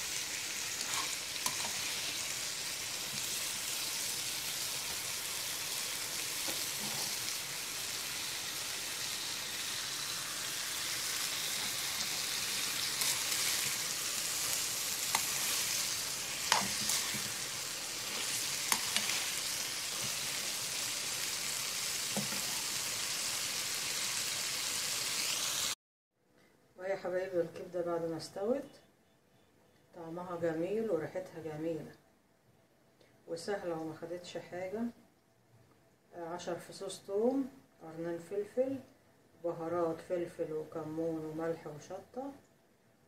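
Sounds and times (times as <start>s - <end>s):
food sizzling in a pan: 0.0s - 25.8s.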